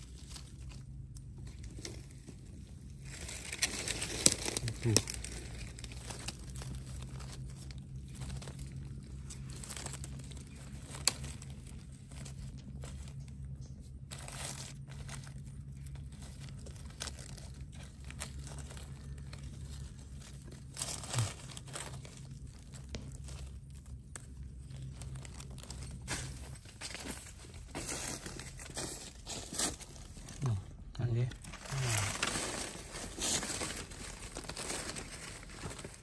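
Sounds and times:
dry leaves rustling: 0.0 - 36.0
low steady hum: 0.0 - 36.0.

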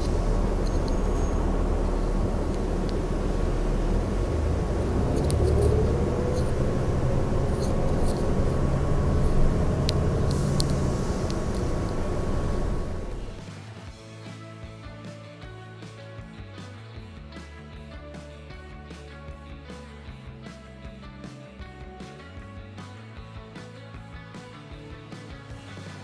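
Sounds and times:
bus engine rumbling: 0.0 - 13.4.

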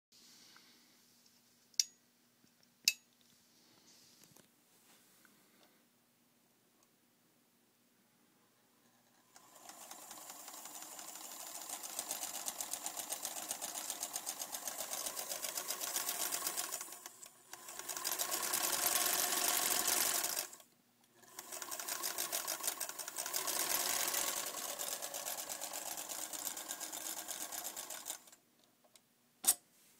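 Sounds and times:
electric sewing machine running: 9.3 - 20.6, 21.2 - 28.4.

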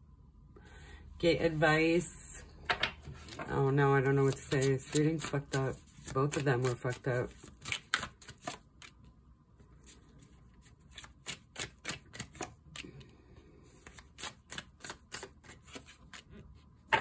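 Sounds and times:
cards laid on a table: 2.6 - 9.0
cards shuffled by hand: 3.0 - 9.1, 9.8 - 16.4.

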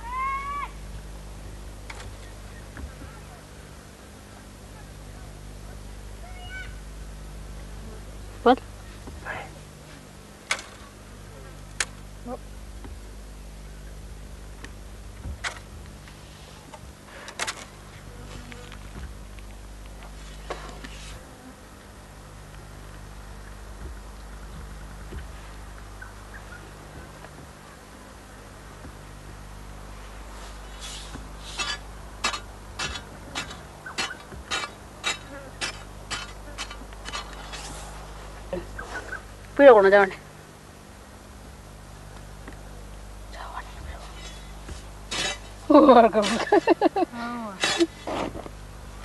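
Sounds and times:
steady low hum: 0.0 - 49.0
digging scrapes in dry earth: 15.4 - 19.0, 20.0 - 21.3, 29.9 - 39.3, 43.9 - 46.8, 47.6 - 48.6
sharp knocks: 31.1 - 37.4.

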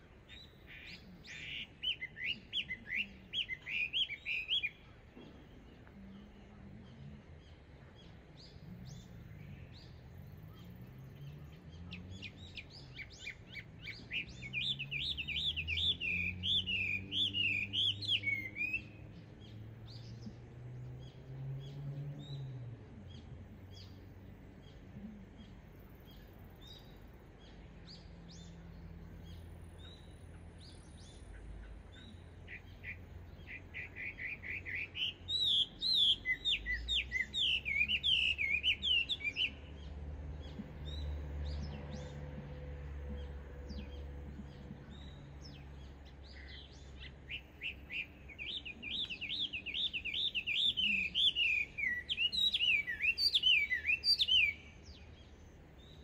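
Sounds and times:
bird singing whistled notes: 0.0 - 5.0, 8.4 - 20.3, 29.2 - 42.2, 43.2 - 56.0
faint bird chirps: 0.0 - 56.0.

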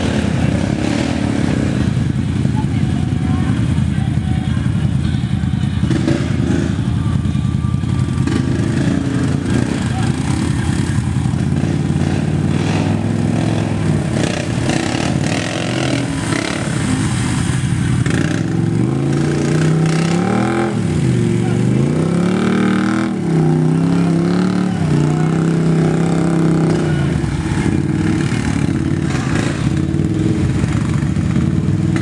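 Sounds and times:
atv engines revving: 0.0 - 32.0.

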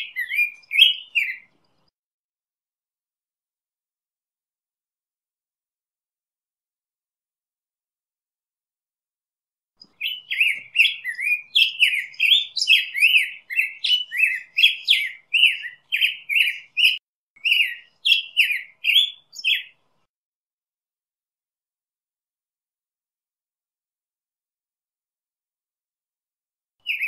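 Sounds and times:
bird singing whistled phrases: 0.0 - 1.5, 9.9 - 19.8.

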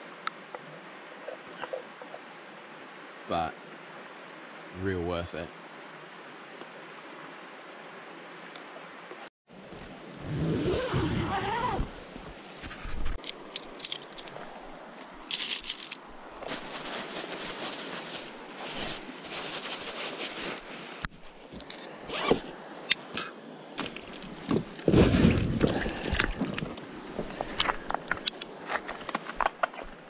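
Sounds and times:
zipper-like strokes: 10.3 - 11.9
gear rustling and scraping: 10.6 - 22.4, 27.2 - 30.0.

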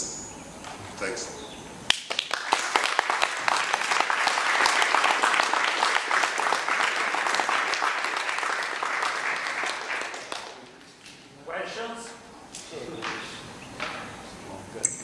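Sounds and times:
audience applauding: 1.9 - 10.9.

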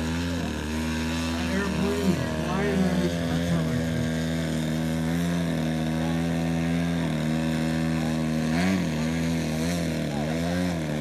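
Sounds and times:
model airplane engine and propeller: 0.0 - 11.0.

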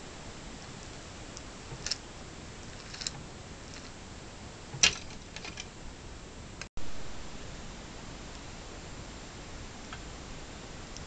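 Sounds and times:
steady hiss: 0.0 - 11.0
plastic gears clicking: 2.7 - 3.9.

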